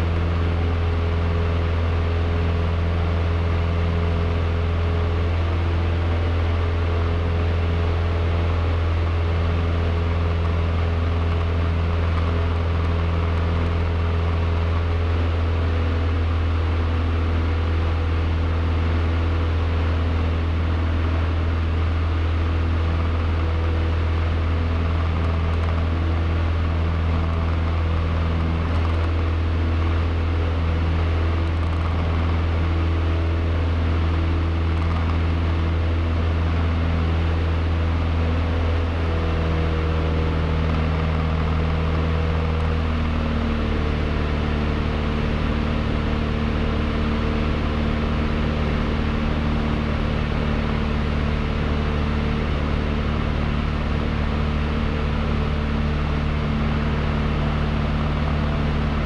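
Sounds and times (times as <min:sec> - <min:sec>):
airplane engine droning in cockpit: 0:00.0 - 0:59.0.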